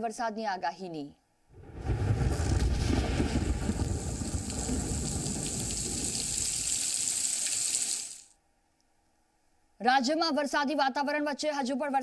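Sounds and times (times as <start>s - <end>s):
low rumble: 1.5s - 6.6s
heavy rain hissing: 1.6s - 8.3s.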